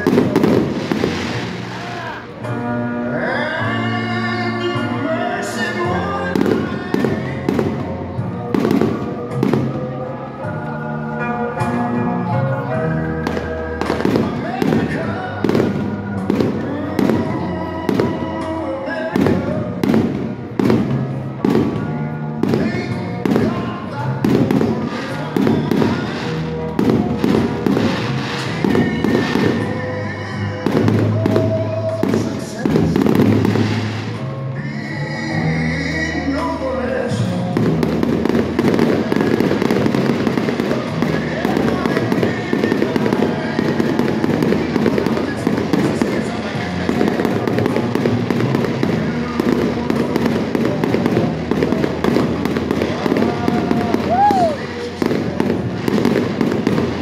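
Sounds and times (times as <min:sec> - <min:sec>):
firework shells booming: 0:00.0 - 0:02.0
fireworks crackling: 0:00.0 - 0:02.6, 0:04.5 - 0:10.4, 0:13.0 - 0:34.7, 0:36.1 - 0:57.0
music playing: 0:00.0 - 0:57.0.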